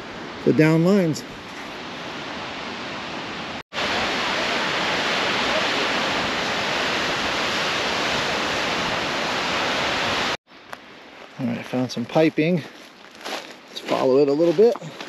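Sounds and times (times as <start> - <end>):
waterfall rushing: 2.2 - 10.4.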